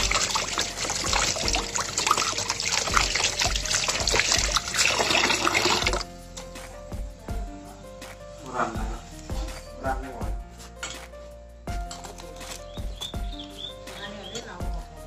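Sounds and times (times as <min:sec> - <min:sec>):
tap water splashing into sink: 0:00.0 - 0:06.0.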